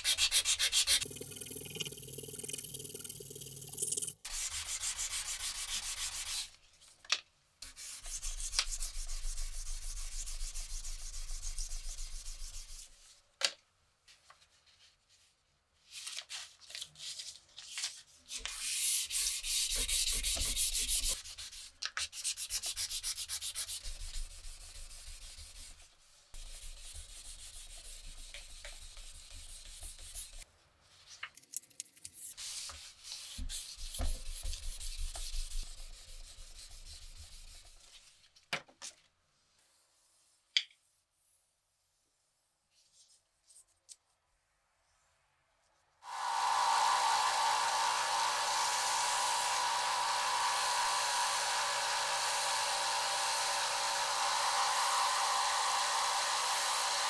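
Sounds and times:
sandpaper scraping metal blade: 0.0 - 1.2, 18.5 - 25.8.

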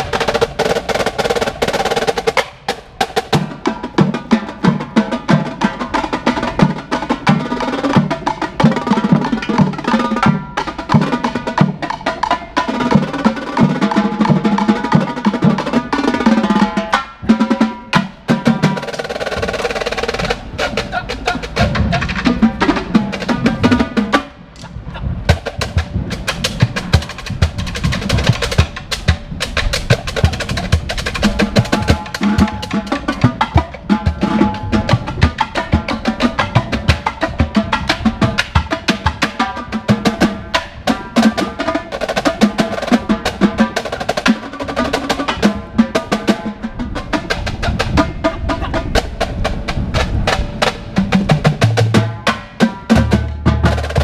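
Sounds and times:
marching drumline: 0.0 - 54.0
low bass drums: 20.2 - 39.1.

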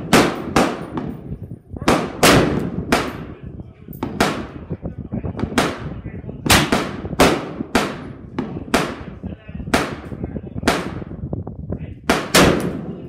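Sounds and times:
gunshots with echo: 0.0 - 1.2, 1.8 - 3.4, 4.0 - 4.6, 5.4 - 11.2, 12.1 - 13.0.

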